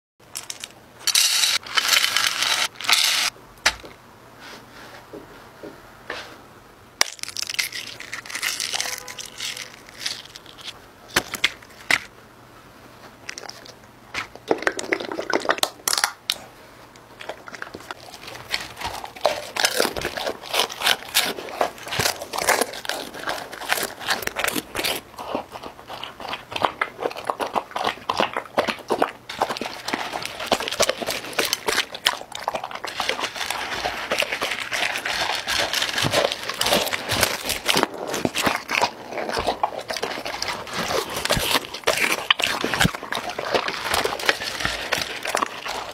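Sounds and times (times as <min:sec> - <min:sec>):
dog food crinkling and rattling: 0:00.3 - 0:03.3, 0:07.1 - 0:11.9, 0:17.2 - 0:45.9
dog eating: 0:17.1 - 0:45.9.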